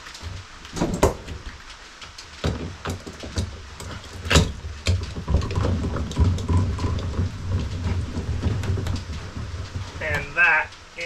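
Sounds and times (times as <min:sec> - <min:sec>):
brace clicks and knocks: 0:00.0 - 0:10.9
bolt grinding into wood: 0:02.5 - 0:10.3.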